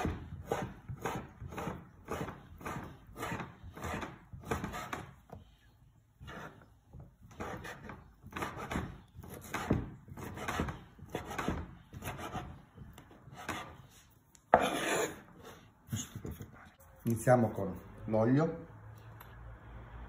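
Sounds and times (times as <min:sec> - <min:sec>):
knife chopping on wooden board: 0:00.0 - 0:05.4, 0:07.2 - 0:13.8, 0:14.5 - 0:15.2.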